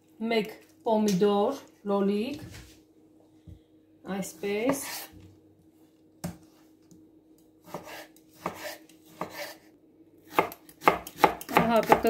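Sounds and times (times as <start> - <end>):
knife chopping on wooden board: 7.6 - 9.6, 10.3 - 12.0.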